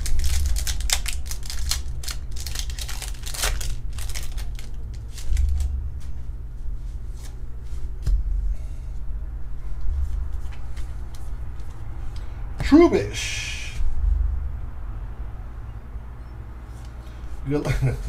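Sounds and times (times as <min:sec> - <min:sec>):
foil wrapper crinkling and tearing: 0:00.0 - 0:05.8
cards being handled: 0:00.0 - 0:06.2, 0:10.0 - 0:12.2
steady low hum: 0:00.0 - 0:18.0.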